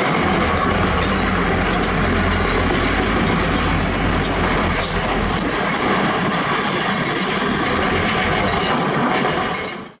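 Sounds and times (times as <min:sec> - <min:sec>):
diesel truck engine running: 0:00.0 - 0:06.2, 0:07.4 - 0:08.6.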